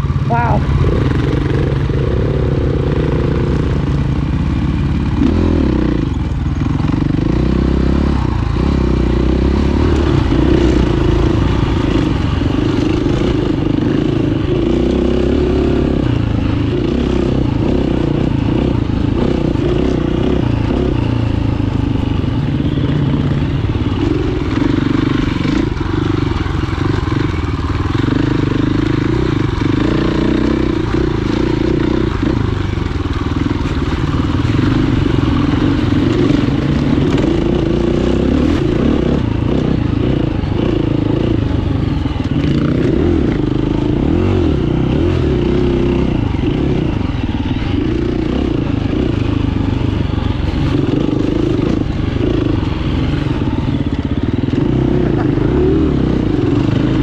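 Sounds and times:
dirt bike engine revving: 0.0s - 57.0s
bike rattling over rough ground: 0.1s - 57.0s.

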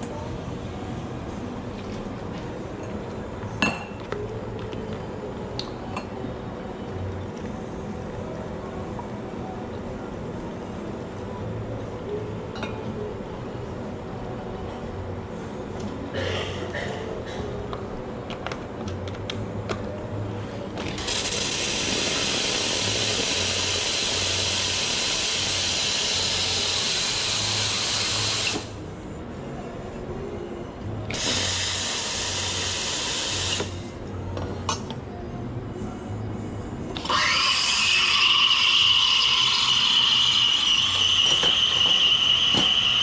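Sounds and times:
cups and metalware clicking: 3.6s - 4.2s, 12.5s - 12.9s, 41.2s - 43.0s.

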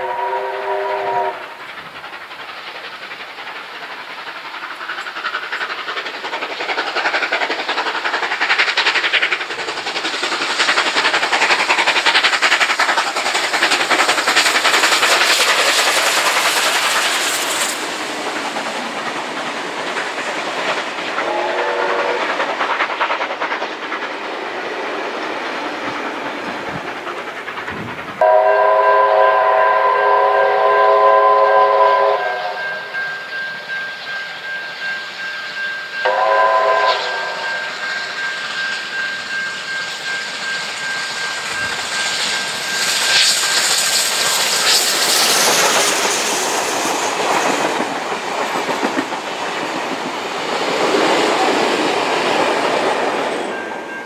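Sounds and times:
steam whistle blast: 0.0s - 1.5s, 21.2s - 22.3s, 28.2s - 33.3s, 36.0s - 37.8s
steam locomotive exhaust beats: 0.0s - 54.0s
wheels on rails: 0.0s - 54.0s
rumble and clatter of carriages: 26.3s - 28.2s.

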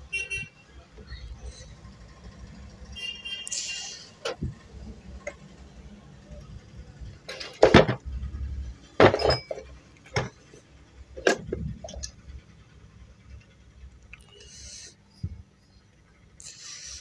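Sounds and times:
metal knocks and clinks: 8.9s - 10.6s.

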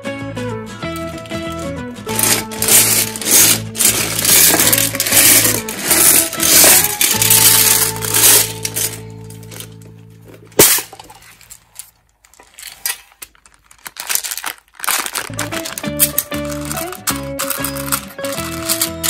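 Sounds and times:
background music: 0.0s - 10.9s, 15.3s - 19.0s
candy packets crinkling: 0.9s - 9.8s, 10.5s - 19.0s
metal tin lid snapping open: 10.6s - 11.2s, 15.4s - 19.0s.

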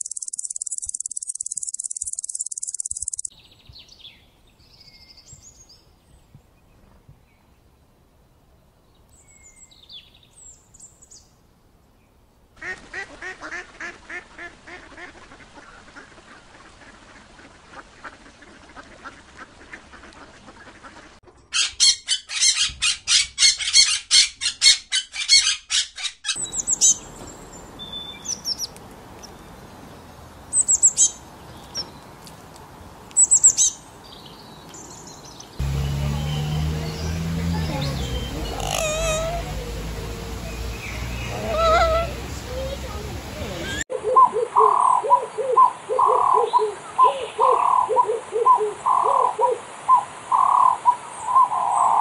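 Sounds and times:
rapid repeated bird calls: 0.0s - 3.4s, 26.3s - 32.0s, 33.2s - 52.0s
birds chirping: 0.0s - 7.5s, 26.3s - 52.0s
parakeets squawking: 35.6s - 45.0s.

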